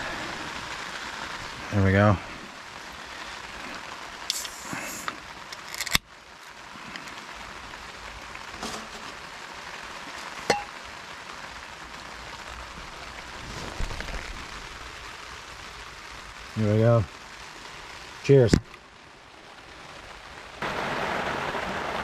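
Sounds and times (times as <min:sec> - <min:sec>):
rain on a tarp: 0:00.0 - 0:22.0
beer can hiss: 0:03.5 - 0:05.2
metallic clink of can in mug: 0:10.5 - 0:10.7.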